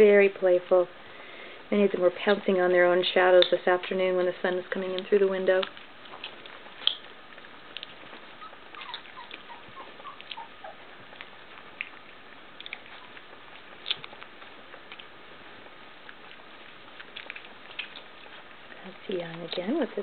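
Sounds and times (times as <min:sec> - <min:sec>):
puppies suckling clicks: 0:01.9 - 0:20.0
puppy tiny squeaks: 0:07.7 - 0:12.0.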